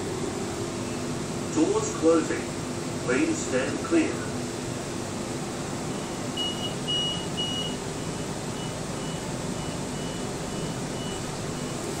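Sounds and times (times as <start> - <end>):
train carriage hum: 0.0 - 12.0
train door warning beeps: 5.9 - 12.0.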